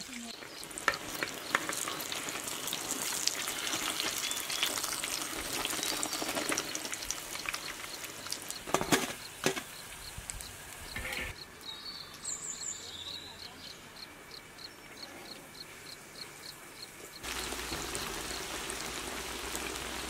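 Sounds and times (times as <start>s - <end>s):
patties sizzling in oil: 0.0s - 11.4s, 17.1s - 20.0s
oil popping: 0.4s - 9.8s, 17.2s - 20.0s.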